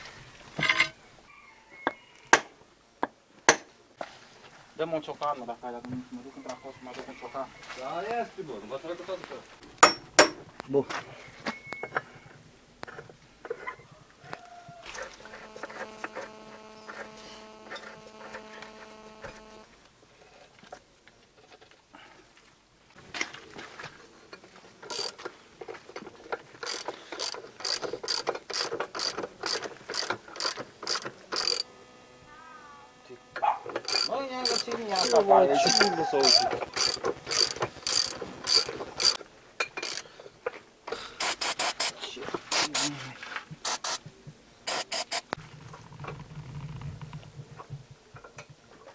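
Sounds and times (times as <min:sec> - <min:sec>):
steady hum: 0:15.1 - 0:19.9, 0:29.1 - 0:40.1, 0:41.2 - 0:45.4
ratchet wrench clicking: 0:24.9 - 0:25.2, 0:26.6 - 0:31.7, 0:33.7 - 0:39.2, 0:39.8 - 0:40.1, 0:41.2 - 0:42.9, 0:43.6 - 0:44.0, 0:44.7 - 0:45.4.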